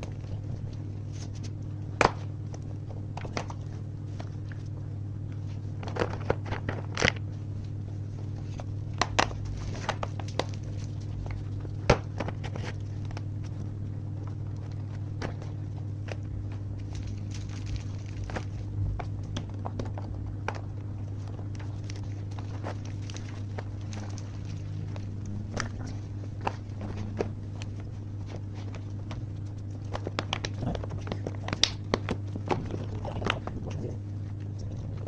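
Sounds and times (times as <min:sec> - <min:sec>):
steady low hum: 0:00.0 - 0:35.0.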